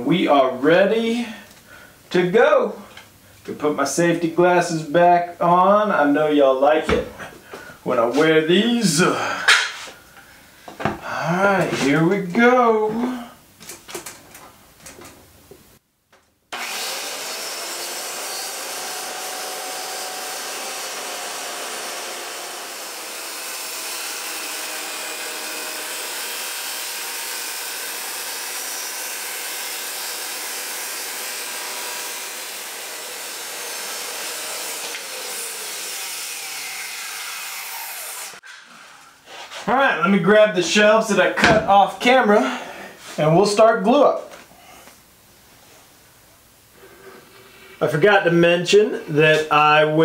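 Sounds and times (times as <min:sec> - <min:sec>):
circular saw cutting plywood: 0:16.5 - 0:38.6.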